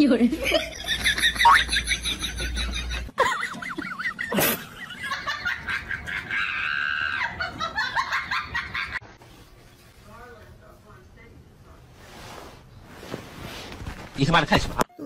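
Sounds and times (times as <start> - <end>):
people laughing: 0.3 - 9.0.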